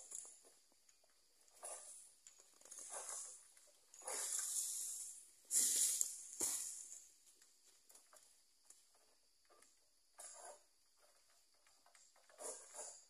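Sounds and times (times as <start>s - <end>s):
palm fronds rustling and scraping: 2.6s - 7.0s.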